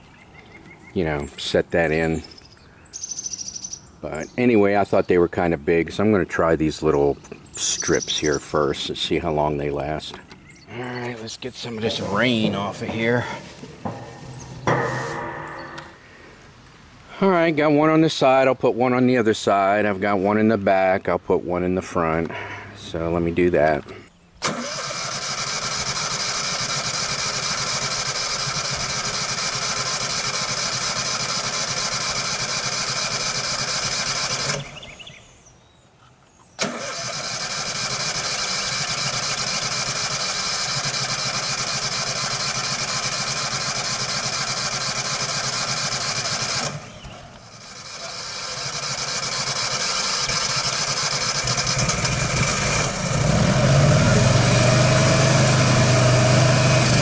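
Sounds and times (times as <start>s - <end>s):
generator running: 7.6s - 16.5s, 22.3s - 35.0s, 36.6s - 57.0s
sharp click: 13.8s - 16.0s.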